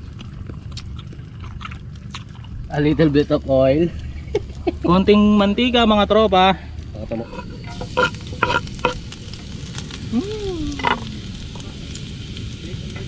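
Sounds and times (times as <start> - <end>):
oil sizzling in a pan: 7.2 - 13.0.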